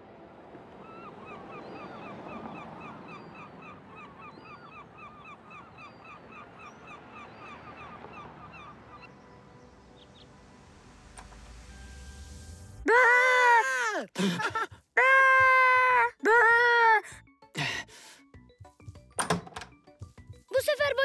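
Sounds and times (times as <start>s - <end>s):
flock of birds calling: 0.8s - 9.4s.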